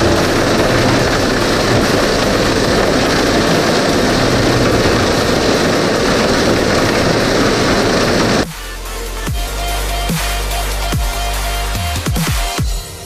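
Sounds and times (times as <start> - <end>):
mulcher rotor chopping stalks: 0.0 - 8.6
tractor engine drone: 0.0 - 11.8.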